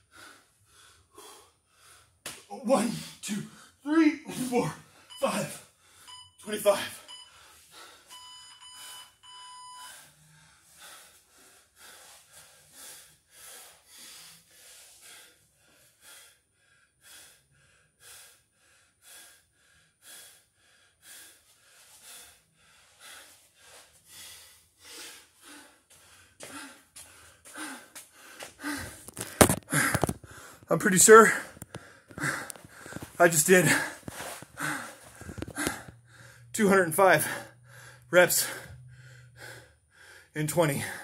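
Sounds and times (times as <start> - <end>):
man breathing hard and gasping: 0.0 - 3.8, 4.4 - 6.2, 6.9 - 9.1, 9.8 - 41.0
electronic timer beeps: 5.1 - 5.5, 6.1 - 7.4, 8.1 - 10.0.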